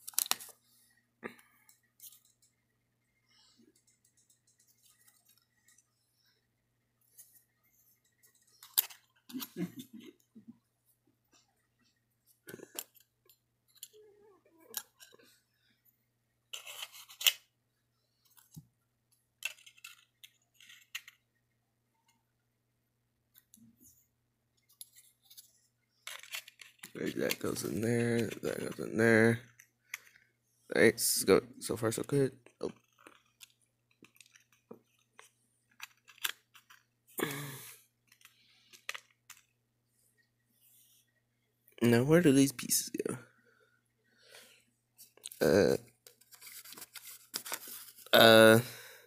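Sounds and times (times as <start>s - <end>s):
small parts clicking and scraping: 1.2s - 2.8s, 3.5s - 6.4s, 7.1s - 9.5s, 12.5s - 15.3s, 16.5s - 17.5s, 19.4s - 21.4s, 24.6s - 30.2s, 32.0s - 37.0s, 37.9s - 39.6s
plastic parts clicking: 19.4s - 21.2s, 26.0s - 27.4s, 32.6s - 36.9s, 38.1s - 39.5s.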